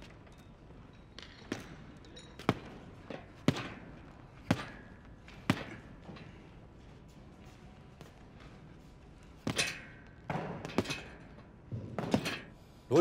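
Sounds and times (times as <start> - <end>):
boxing glove punches thudding: 3.4 - 5.8.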